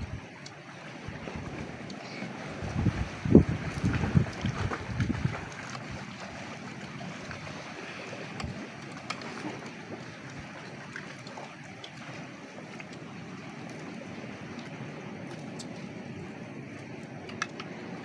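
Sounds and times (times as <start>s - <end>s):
wind buffeting microphone: 0.0s - 0.3s, 2.5s - 6.2s
wind and surf hiss: 0.0s - 18.0s.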